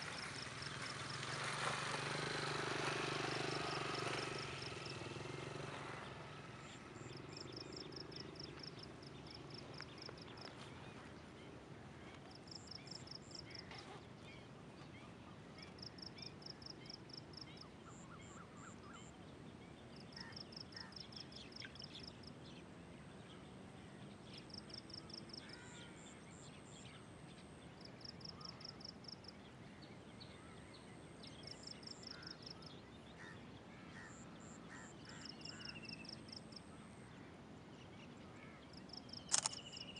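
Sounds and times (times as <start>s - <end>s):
low background noise: 0.0s - 39.9s
faint chirps: 38.7s - 39.9s.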